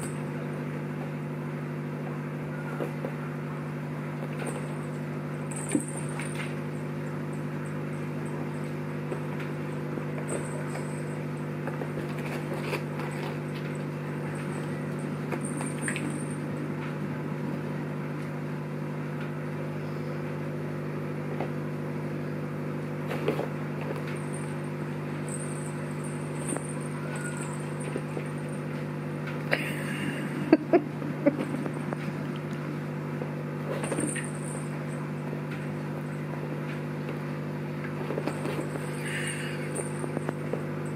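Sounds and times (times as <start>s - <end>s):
low hum: 2.5s - 18.3s, 23.1s - 32.7s
light knocks and rattles of cat toy: 4.2s - 6.6s, 10.2s - 17.0s, 25.3s - 28.6s, 33.7s - 34.7s, 38.0s - 40.9s.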